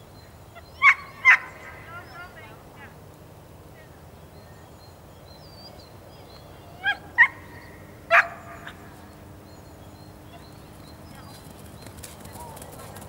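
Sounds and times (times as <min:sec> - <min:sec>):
faint birdsong: 0:00.0 - 0:13.0
dog barking: 0:08.1 - 0:08.8.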